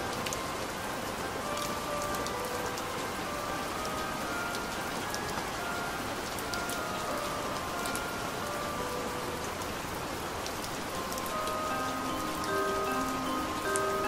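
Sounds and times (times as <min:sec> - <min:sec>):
soft background music: 0:00.0 - 0:14.0
steady rain: 0:00.0 - 0:14.0
raindrop ticks: 0:00.1 - 0:00.5, 0:01.4 - 0:03.2, 0:03.8 - 0:08.2, 0:09.4 - 0:14.0.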